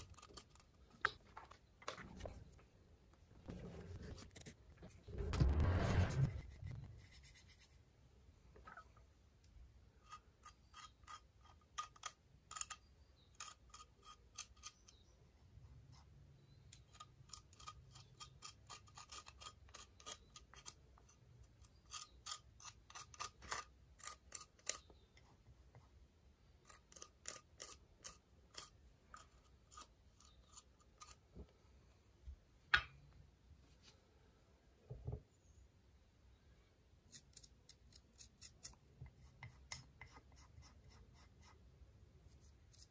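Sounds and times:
spatula scraping ceramic edge: 0:10.0 - 0:15.1.

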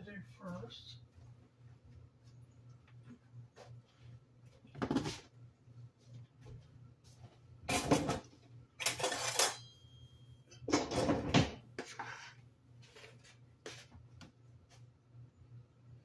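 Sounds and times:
dishes and utensils clattering: 0:07.7 - 0:09.9, 0:10.5 - 0:12.3
metallic ring: 0:08.8 - 0:10.7.

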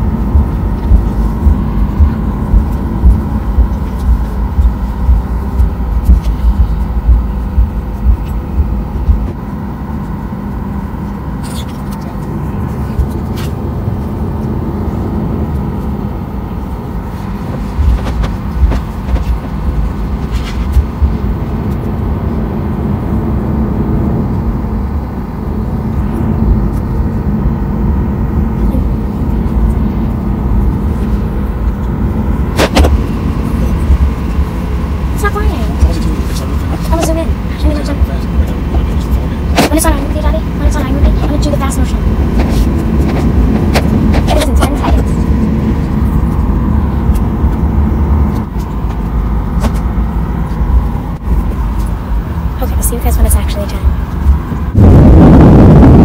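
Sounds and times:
low thumps: 0:00.0 - 0:09.9, 0:17.5 - 0:22.2, 0:53.3 - 0:56.0
jet engine hum: 0:00.0 - 0:56.0
low rumble from wheels: 0:00.0 - 0:56.0.

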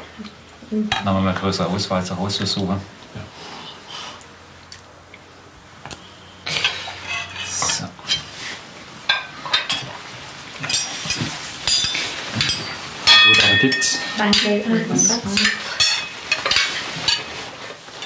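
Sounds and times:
plates and cutlery clattering: 0:06.5 - 0:08.4, 0:09.1 - 0:18.0.

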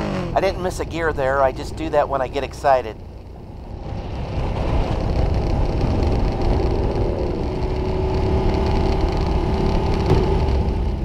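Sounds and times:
motorcycle engine running: 0:00.0 - 0:11.0
wind rumble on microphone: 0:03.4 - 0:11.0.

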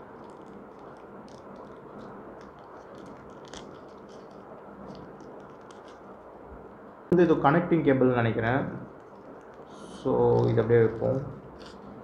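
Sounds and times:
wrapping being peeled off: 0:00.0 - 0:06.4, 0:08.8 - 0:12.0.

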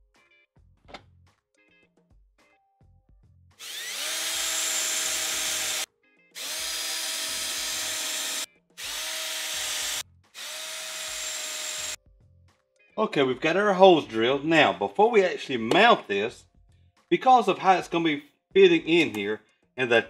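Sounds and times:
cordless drill boring metal: 0:03.6 - 0:12.0.

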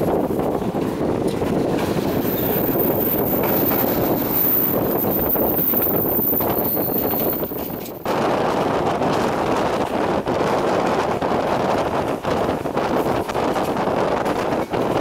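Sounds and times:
train wheels rumbling: 0:00.0 - 0:11.0
wind on microphone: 0:00.0 - 0:15.0.

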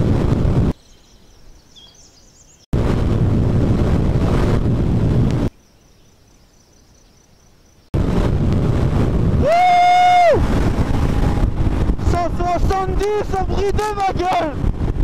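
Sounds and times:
motorcycle riding at speed: 0:00.0 - 0:00.8, 0:02.8 - 0:05.5, 0:08.0 - 0:15.0
wind on microphone: 0:00.0 - 0:00.8, 0:02.8 - 0:05.5, 0:08.0 - 0:15.0.

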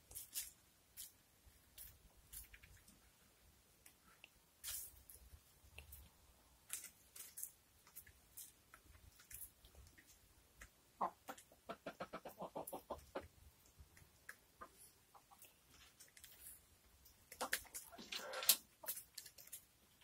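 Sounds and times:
chickens clucking: 0:11.0 - 0:13.3, 0:17.3 - 0:18.9.

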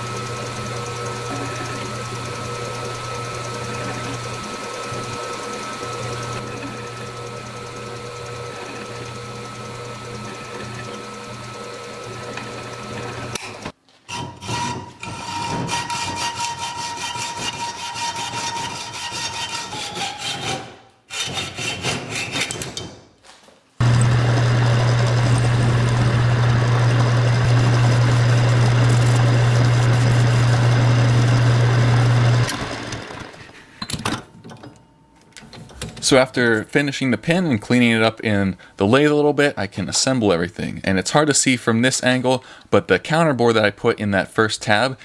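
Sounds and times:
metal lathe running: 0:00.0 - 0:13.7, 0:23.8 - 0:33.8.

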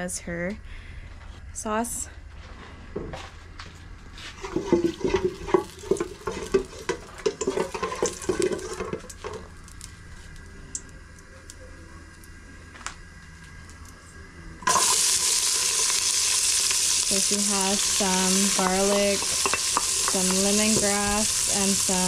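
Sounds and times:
wooden spoon scraping pot: 0:04.3 - 0:09.4
loud sizzle in hot oil: 0:04.3 - 0:10.1, 0:14.6 - 0:22.0.

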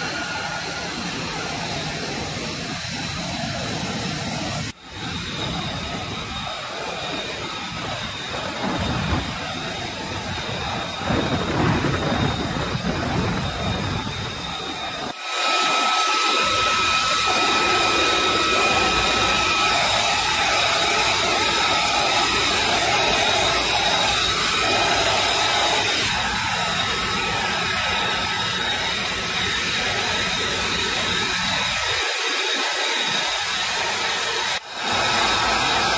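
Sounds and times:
jet turbine whine: 0:00.0 - 0:35.9.

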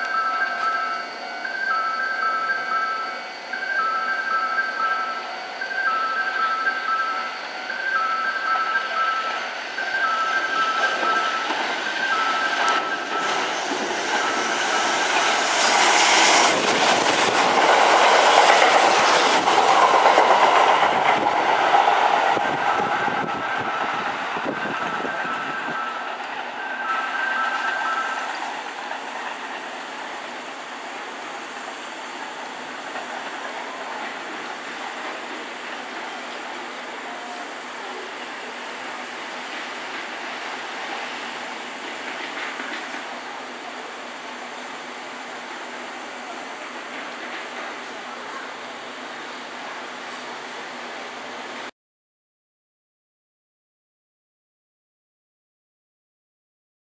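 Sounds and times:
two-tone warning signal: 0:00.0 - 0:15.3, 0:22.4 - 0:29.3
electric train passing at speed: 0:00.0 - 0:51.7
wheels clattering over rail joints: 0:05.9 - 0:37.2, 0:39.0 - 0:43.9, 0:45.8 - 0:48.6.

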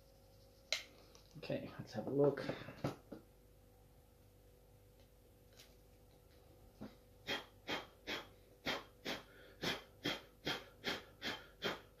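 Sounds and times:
quick puffs of breath: 0:07.2 - 0:12.0.

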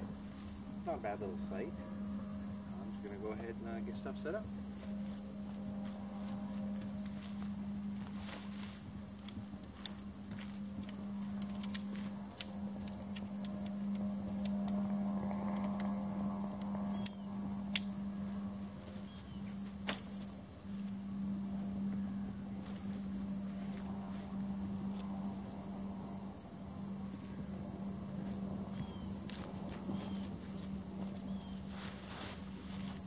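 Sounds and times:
high-pitched insect chorus: 0:00.0 - 0:33.0
low steady hum: 0:00.0 - 0:33.0
sharp clicks: 0:11.3 - 0:17.9.

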